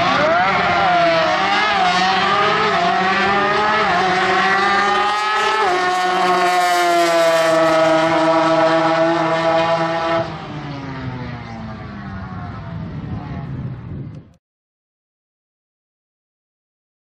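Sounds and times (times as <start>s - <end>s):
rotary engine at full throttle: 0.0s - 14.3s.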